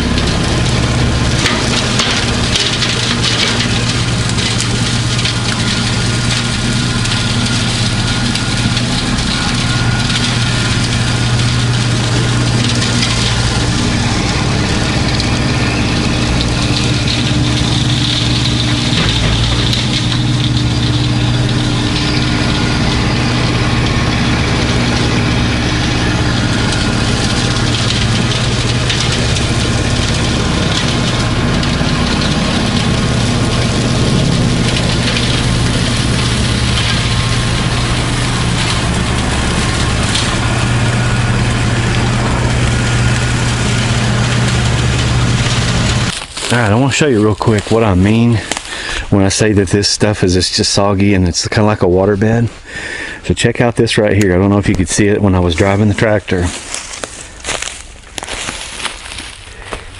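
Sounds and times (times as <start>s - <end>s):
tractor diesel engine running: 0.0s - 59.9s.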